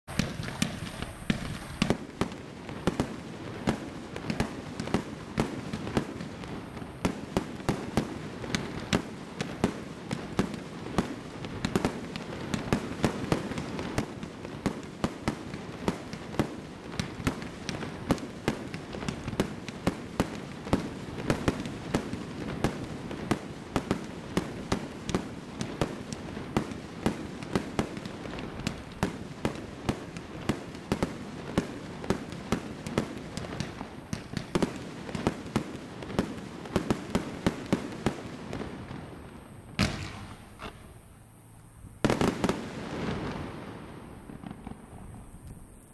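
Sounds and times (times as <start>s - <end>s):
hiss of burning sparks: 0.1s - 38.6s
firework reports: 0.1s - 45.9s.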